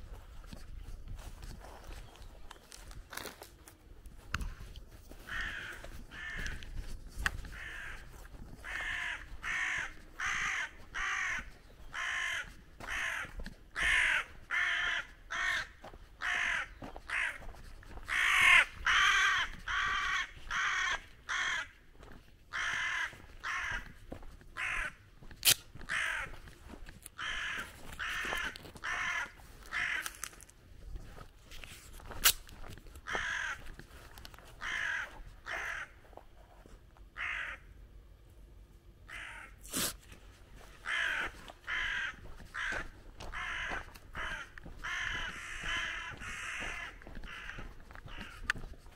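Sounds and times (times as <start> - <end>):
crows cawing: 5.0 - 30.5, 32.9 - 36.2, 37.1 - 37.8, 39.0 - 39.6, 40.5 - 48.9.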